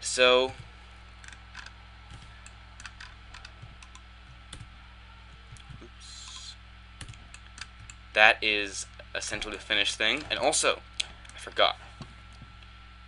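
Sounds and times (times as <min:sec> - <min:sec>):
low electrical hum: 0:00.0 - 0:13.0
keyboard and mouse clicks: 0:00.6 - 0:04.7.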